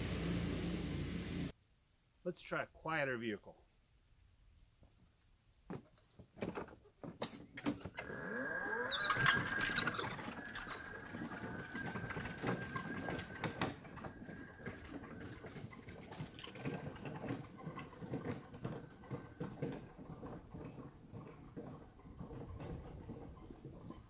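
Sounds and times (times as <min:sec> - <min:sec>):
electric mower motor whining: 0:00.0 - 0:01.5, 0:07.9 - 0:20.2
log roller knocking and rattling: 0:05.7 - 0:24.0.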